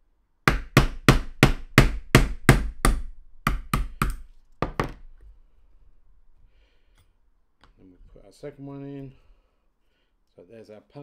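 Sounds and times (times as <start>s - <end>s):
hammer tapping metal punch: 0.5s - 5.0s.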